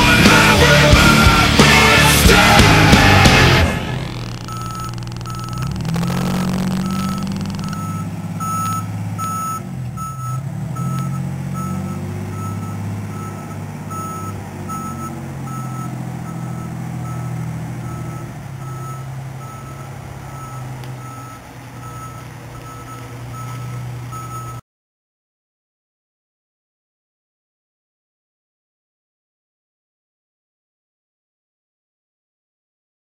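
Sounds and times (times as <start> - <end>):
fire truck engine running: 0.0 - 24.6
backup alarm beeping: 4.0 - 24.6.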